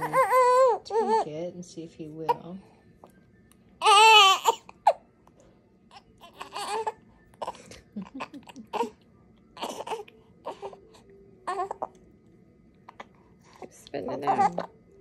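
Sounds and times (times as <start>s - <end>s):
newborn baby crying: 0.0s - 1.4s, 3.8s - 5.1s, 5.9s - 9.0s, 9.6s - 12.0s, 14.1s - 14.8s.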